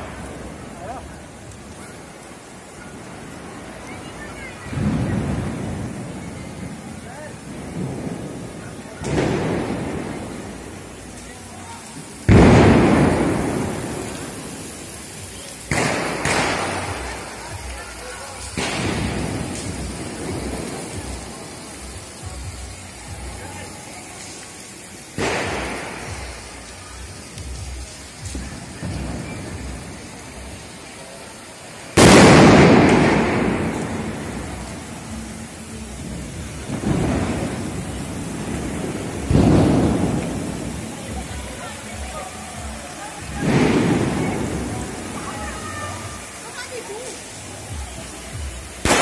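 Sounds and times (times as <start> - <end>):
firecracker boom: 3.2 - 24.3, 25.1 - 30.8, 31.9 - 35.2, 36.0 - 42.0, 42.6 - 46.2, 48.4 - 49.0
distant firecracker pops: 9.0 - 10.5, 12.3 - 14.4, 15.7 - 17.6, 18.5 - 21.3, 25.2 - 26.4, 32.0 - 34.5, 36.7 - 40.8, 43.2 - 44.6.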